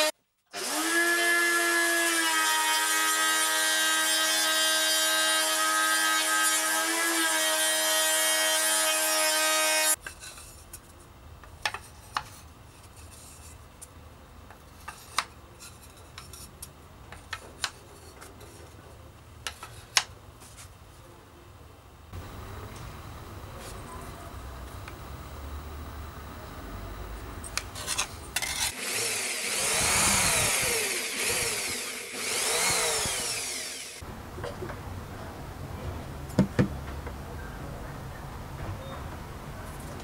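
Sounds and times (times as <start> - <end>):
router motor whine: 28.4 - 34.0.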